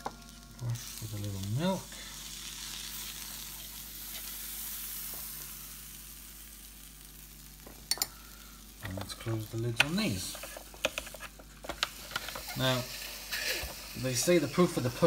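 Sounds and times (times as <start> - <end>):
pastry sizzling in pie maker: 0.0 - 15.0.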